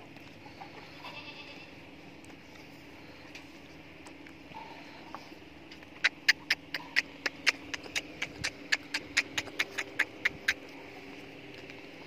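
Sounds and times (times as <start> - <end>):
sharp clicks: 6.0 - 10.7.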